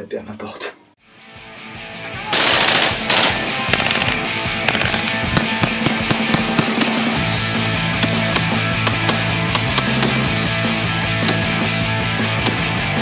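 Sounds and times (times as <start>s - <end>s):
dramatic music: 1.4s - 13.0s
rifle automatic fire: 2.3s - 7.2s
rifle single shots: 2.4s - 7.2s.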